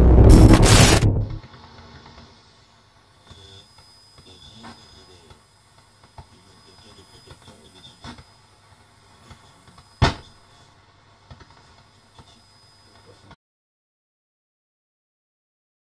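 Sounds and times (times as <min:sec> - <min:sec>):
loud sharp hit: 0:00.0 - 0:01.4
faint noisy texture: 0:00.0 - 0:13.4.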